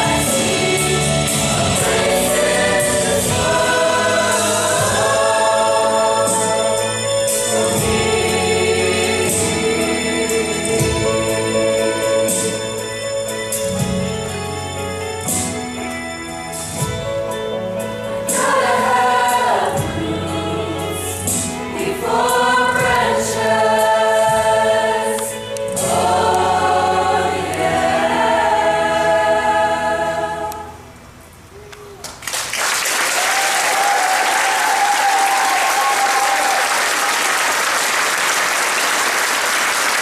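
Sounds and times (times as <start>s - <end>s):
choir singing: 0.0s - 13.4s, 18.1s - 30.8s
audience applause: 32.0s - 40.0s.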